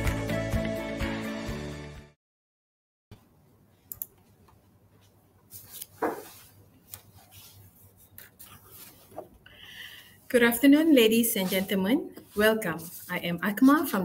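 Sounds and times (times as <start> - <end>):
light clicks and ticks: 3.9 - 4.3.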